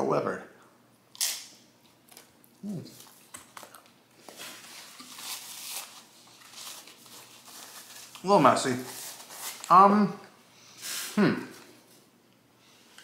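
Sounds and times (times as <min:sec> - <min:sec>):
person humming: 0:02.6 - 0:03.0
paper napkin crinkling: 0:02.9 - 0:09.8.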